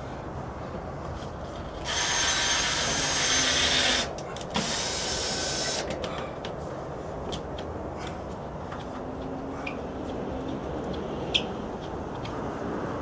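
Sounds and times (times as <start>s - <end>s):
power drill driving screws: 1.8s - 5.9s.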